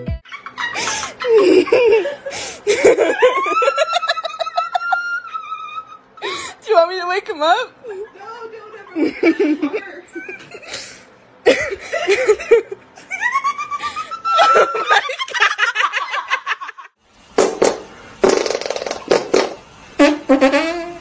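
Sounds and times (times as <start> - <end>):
people laughing hard: 0.2 - 6.2, 11.5 - 17.0.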